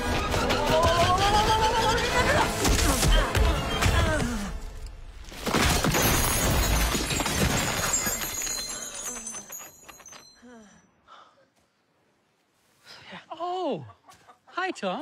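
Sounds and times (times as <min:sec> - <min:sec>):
debris clattering and clinking: 0:05.3 - 0:10.4
loud crash with shattering: 0:05.4 - 0:08.7.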